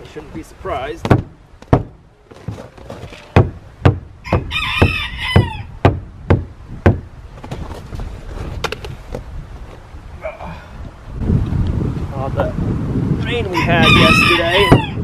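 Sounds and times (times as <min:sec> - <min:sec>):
boot kicks on wooden door: 0:01.0 - 0:07.0
rooster crowing: 0:04.2 - 0:05.7, 0:13.5 - 0:15.0.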